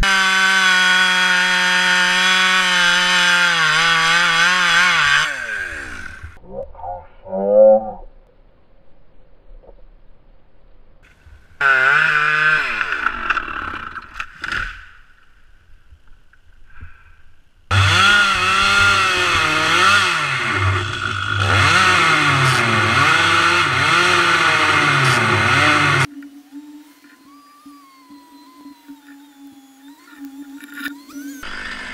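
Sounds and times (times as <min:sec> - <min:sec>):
chainsaw revving: 0:00.0 - 0:06.4, 0:11.6 - 0:14.6, 0:17.7 - 0:31.9.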